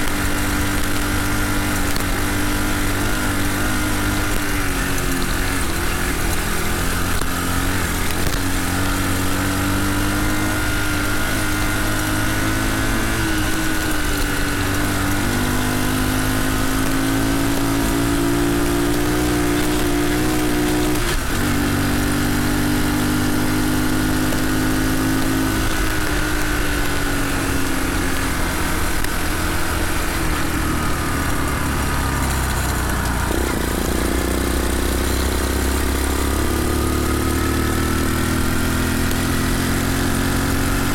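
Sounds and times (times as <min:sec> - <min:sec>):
mini bike engine running: 0:00.0 - 0:40.9.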